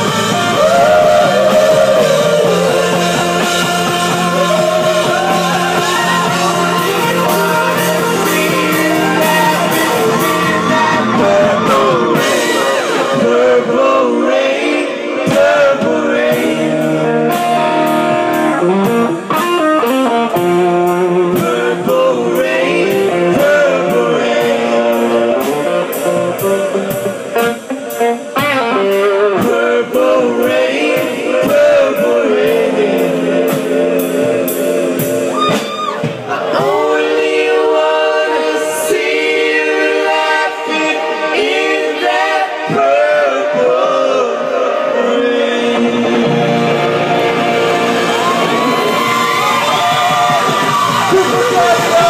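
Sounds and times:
people singing: 0.0 - 19.0, 20.4 - 52.0
electric guitar: 0.0 - 36.4, 45.3 - 52.0
steady beat: 46.2 - 52.0.

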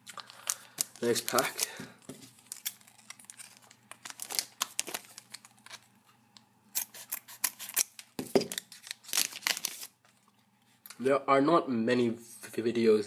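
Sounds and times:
wrapper rustling: 0.0 - 5.9, 6.8 - 10.2
scissors snipping wrapper: 2.5 - 5.8, 6.8 - 9.9.

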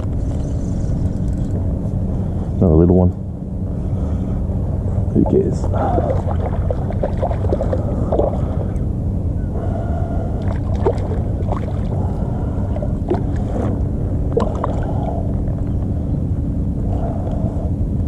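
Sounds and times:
low rumble: 0.0 - 18.0
fish splashing: 5.8 - 8.7.

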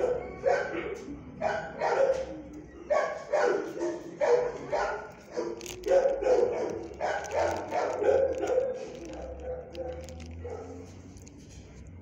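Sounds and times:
dog barking: 0.0 - 11.0.

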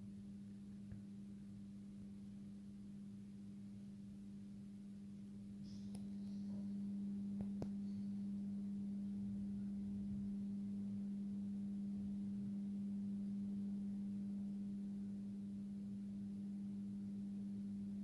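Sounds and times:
lamp electrical hum: 0.0 - 18.0.

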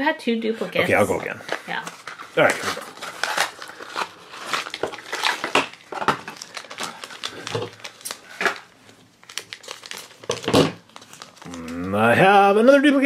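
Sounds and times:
plastic pouch crinkling: 1.4 - 12.2
scissors cutting packaging: 1.8 - 8.6.

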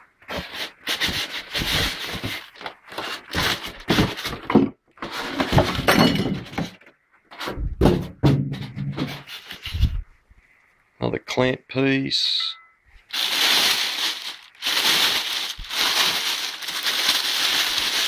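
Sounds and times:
plastic wrapping rustling: 0.4 - 4.4, 13.1 - 18.0
thunks: 7.4 - 9.2.

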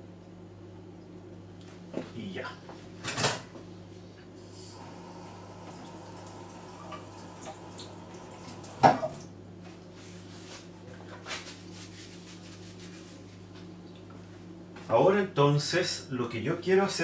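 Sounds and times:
water splashing in sink: 5.0 - 9.3.

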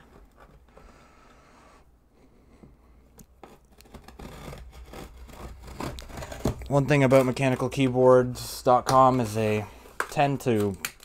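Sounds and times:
blade cutting packing tape: 3.5 - 7.4.

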